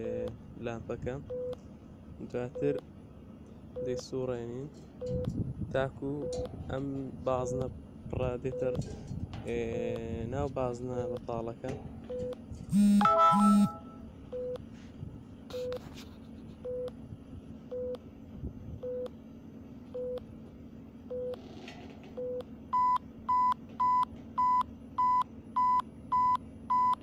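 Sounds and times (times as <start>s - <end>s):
phone app beeps: 12.1s - 14.6s, 22.2s - 27.0s.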